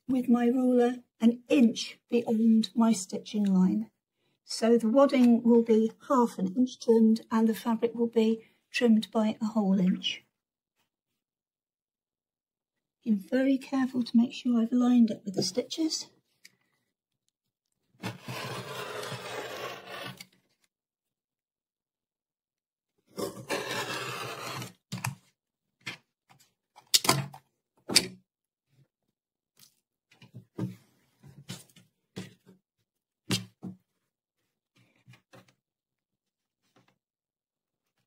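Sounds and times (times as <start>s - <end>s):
rotary cutter slicing fabric: 18.0s - 20.3s, 23.2s - 24.8s.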